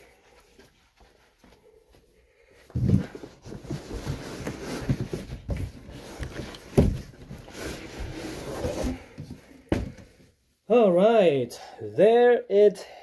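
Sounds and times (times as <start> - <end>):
cardboard box scraping: 2.8 - 9.2.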